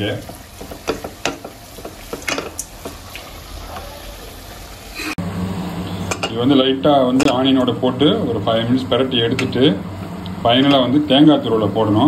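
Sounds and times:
food sizzling: 0.0s - 12.0s.

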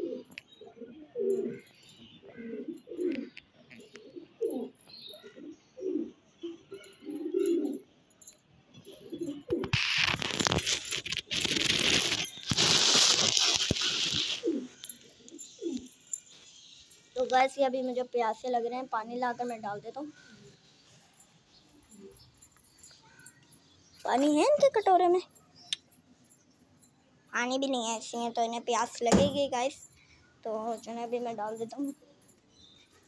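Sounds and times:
pigeons cooing: 0.0s - 7.9s, 8.8s - 10.2s, 13.6s - 16.0s
loud rustling: 9.8s - 14.5s.

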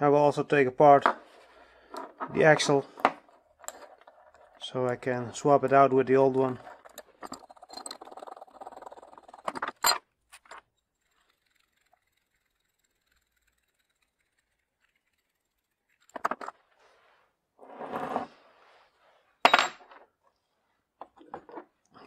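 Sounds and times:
metal parts scraping and rattling: 1.2s - 16.8s.

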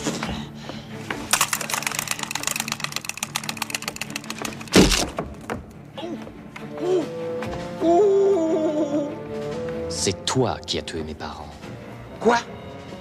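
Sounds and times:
rapid sharp clicks: 1.3s - 5.2s.

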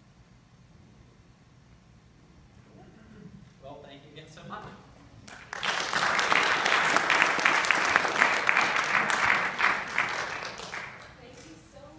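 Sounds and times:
audience applauding: 5.2s - 11.2s.

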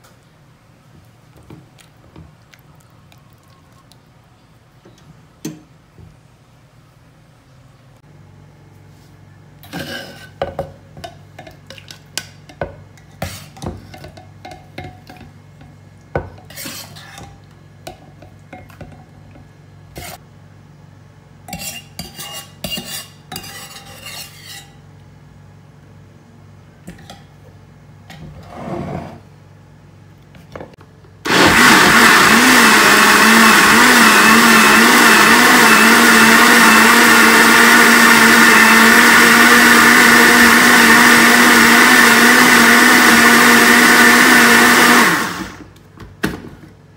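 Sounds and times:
metal ladle clinking and scraping: 21.5s - 24.8s
blender running: 31.2s - 45.7s.

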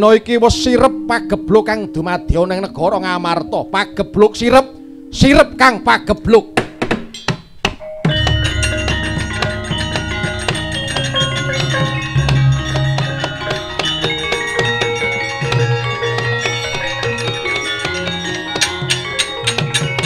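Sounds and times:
gamelan playing: 0.0s - 20.0s
drum: 8.0s - 17.2s.

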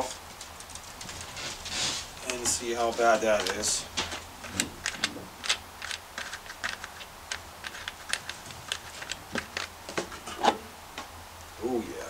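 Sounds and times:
plastic cover being handled: 0.0s - 10.6s
nut turned by hand clicking: 4.4s - 10.0s.

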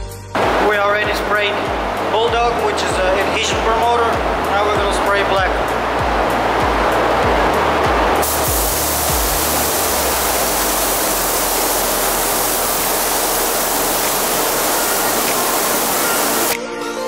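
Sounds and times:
paint spray gun hissing: 8.2s - 16.6s.

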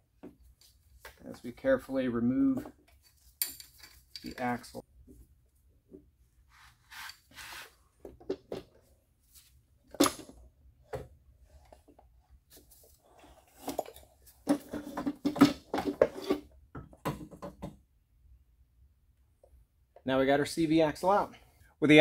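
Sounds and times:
metal parts clinking and knocking: 2.9s - 4.6s.

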